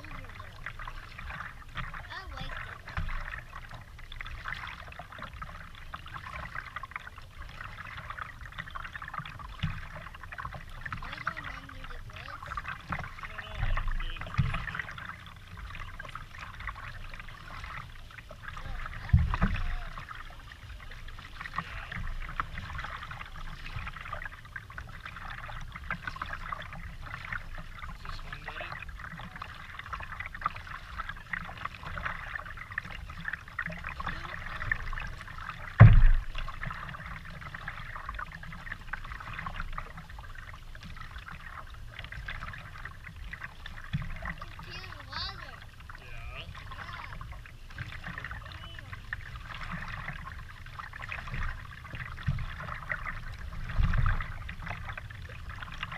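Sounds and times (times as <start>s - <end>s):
paddle splashing water: 0.0s - 55.9s
water lapping at plastic hull: 0.0s - 55.9s
dull thumps: 35.8s - 36.4s.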